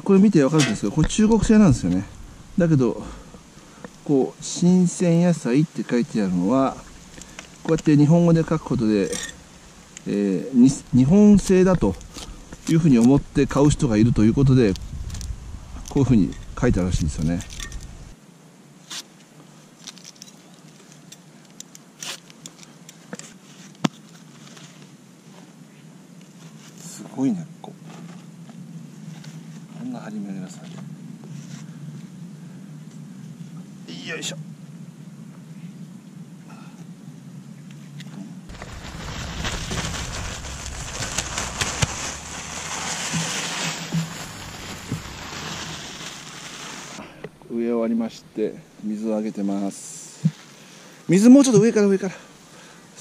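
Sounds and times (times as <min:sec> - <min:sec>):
soil pattering onto garden bed: 0:38.5 - 0:47.1
clods landing: 0:38.5 - 0:47.5.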